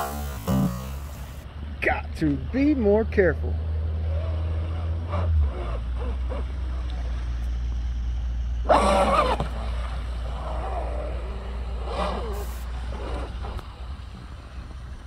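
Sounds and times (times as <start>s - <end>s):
electric motor whine: 0.0s - 1.4s.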